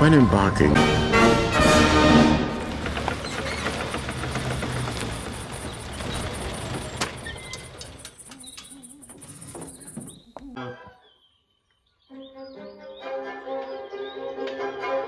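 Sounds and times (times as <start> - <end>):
truck engine running: 0.0 - 10.4
fast high chirping: 5.0 - 10.4.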